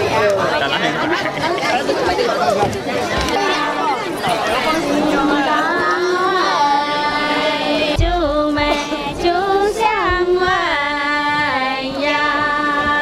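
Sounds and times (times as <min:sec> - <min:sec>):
women singing folk song: 0:04.4 - 0:13.0
low thumps: 0:07.8 - 0:13.0.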